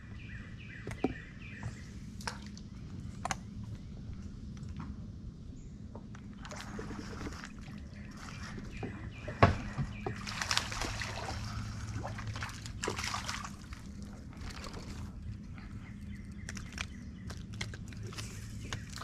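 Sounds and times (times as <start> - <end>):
fish splashing and thrashing in water: 6.4 - 19.0.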